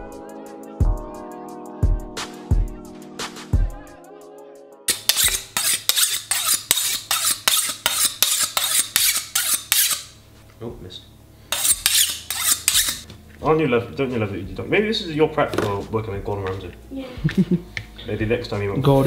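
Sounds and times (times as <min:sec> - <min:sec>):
music with kick-drum beat: 0:00.0 - 0:04.0
knife scraping on honing steel: 0:04.9 - 0:10.2, 0:11.5 - 0:13.1.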